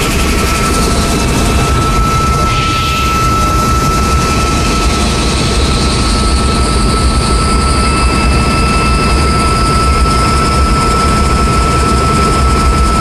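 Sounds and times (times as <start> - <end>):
steady high tone: 0.0 - 11.4
helicopter engine and rotor: 0.0 - 13.0.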